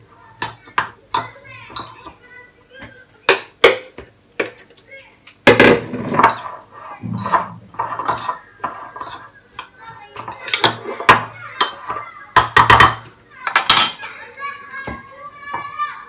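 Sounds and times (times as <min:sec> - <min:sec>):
metal spoon scraping a bowl: 0:01.7 - 0:02.2, 0:06.2 - 0:09.4.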